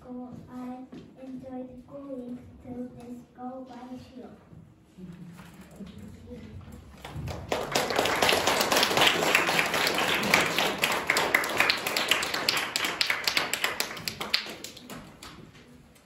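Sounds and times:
audience applauding: 7.0 - 15.4.

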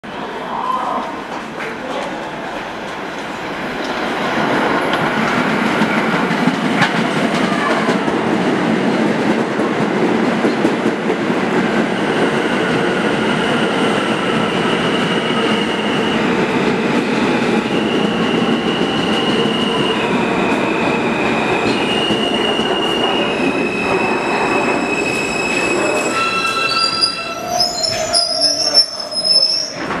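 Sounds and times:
train wheels rumbling on rails: 0.9 - 30.0
wheel and brake squeals: 24.8 - 29.9.

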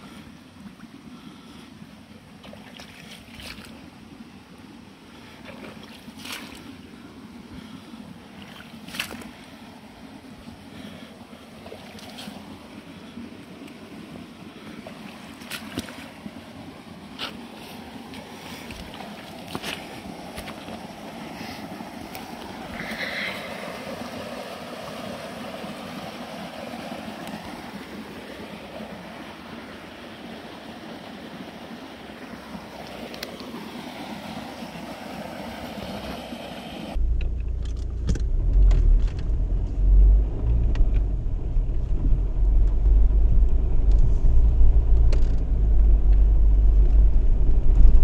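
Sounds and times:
stream water rushing: 1.7 - 37.0
boot footsteps on wet mud: 18.1 - 20.8
low rushing noise: 36.9 - 48.0.

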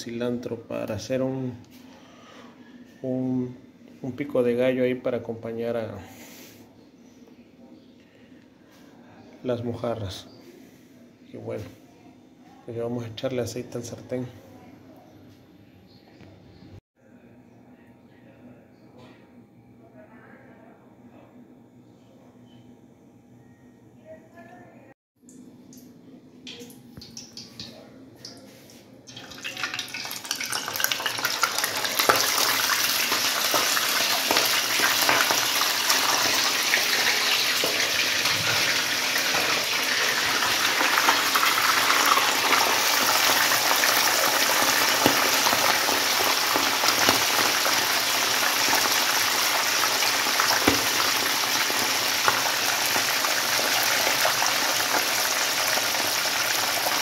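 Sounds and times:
fish sizzling in hot oil: 29.2 - 57.0.

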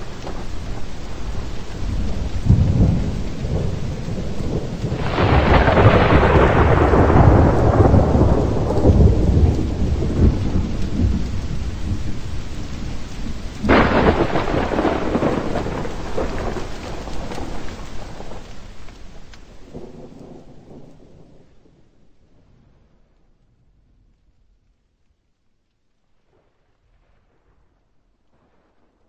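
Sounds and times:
thunder claps: 0.0 - 23.2
steady rain: 0.0 - 29.0.

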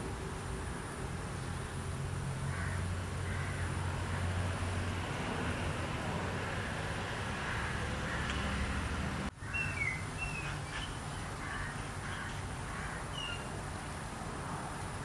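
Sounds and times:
low hum and hiss: 0.0 - 15.0
bird chirps: 9.4 - 12.5, 13.1 - 13.5.

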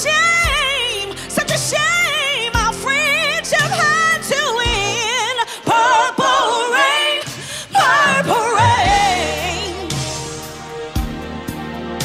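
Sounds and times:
sustained low accompaniment chords: 8.8 - 12.0.

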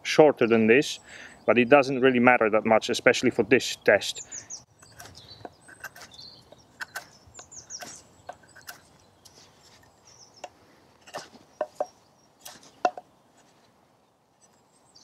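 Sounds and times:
knife carving hard wood: 4.8 - 9.0.

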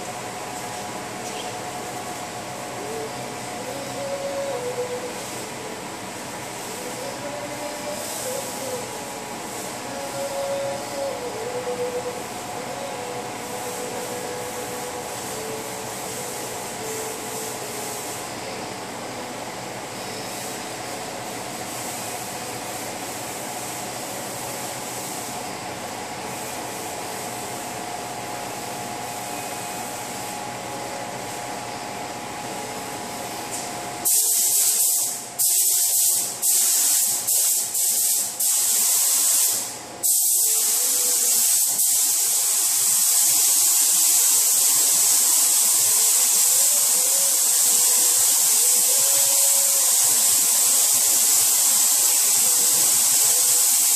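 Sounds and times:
steady background hum: 0.0 - 53.9
spray gun hissing: 6.5 - 18.4, 34.0 - 53.9.

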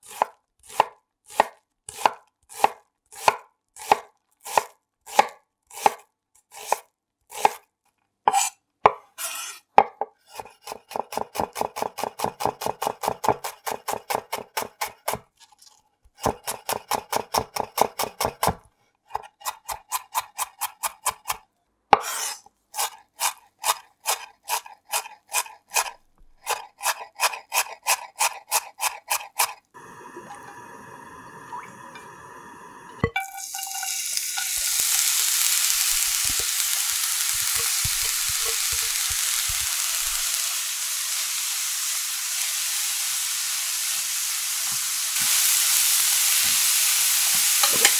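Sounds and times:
knife chopping on wooden board: 0.0 - 6.0, 8.3 - 9.0, 9.8 - 15.2, 16.2 - 29.6
onion sizzling in hot oil: 29.8 - 47.9.

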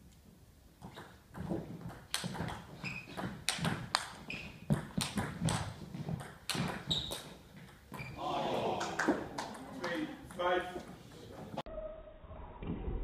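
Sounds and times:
short high squeaks: 2.8 - 3.2, 6.9 - 7.3.

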